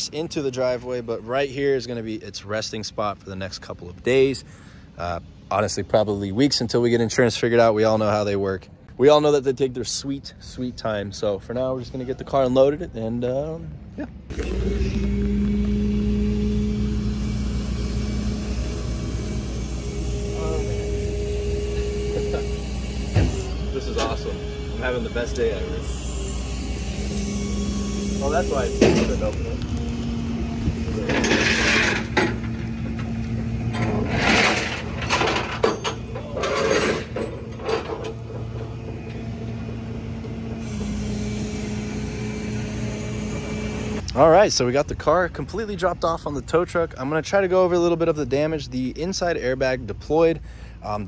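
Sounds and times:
truck engine rumble: 13.6s - 46.7s
hydraulic pump hum: 14.3s - 44.1s
metal car parts clanking: 31.0s - 39.3s.

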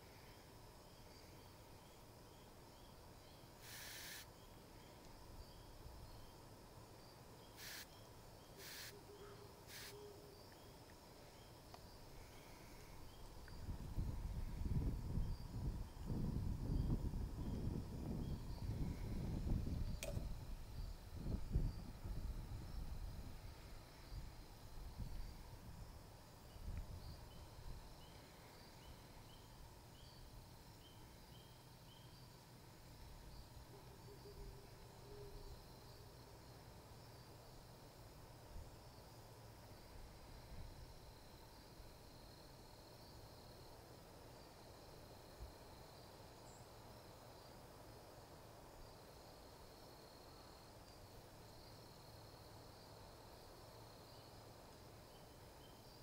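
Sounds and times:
high-pitched insect drone: 3.2s - 4.4s, 7.5s - 8.0s, 8.6s - 10.6s
low wind rumble: 12.1s - 28.4s.

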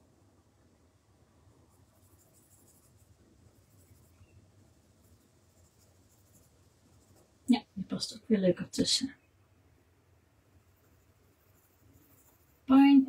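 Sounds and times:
coloured pencil scratching on paper: 1.6s - 7.4s, 10.6s - 13.0s.

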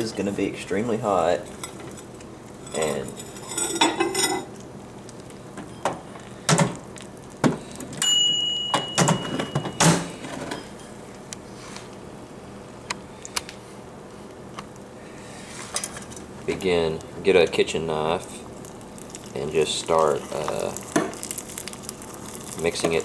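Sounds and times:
steady high tone: 8.0s - 10.1s
microwave door shutting: 8.0s - 10.4s.

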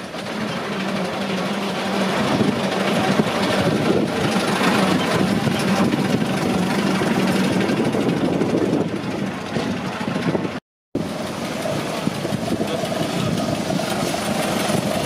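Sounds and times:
steam wagon driving past: 0.0s - 15.0s.

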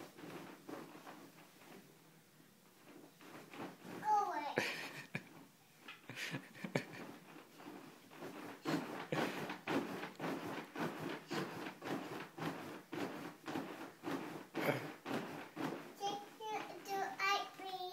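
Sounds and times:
wooden crib knocking and rattling: 6.4s - 17.8s.

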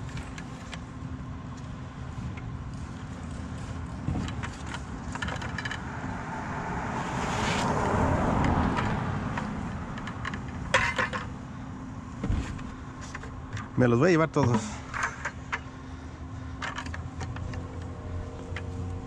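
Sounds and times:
steady low hum: 0.0s - 19.0s
wire handles clinking: 2.9s - 6.0s, 8.7s - 11.4s, 12.6s - 15.8s, 16.5s - 18.9s
car passing: 5.2s - 13.0s.

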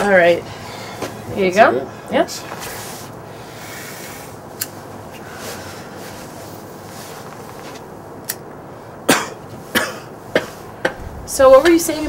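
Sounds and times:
steady background hiss: 0.0s - 12.0s
loud knock: 10.8s - 12.0s.

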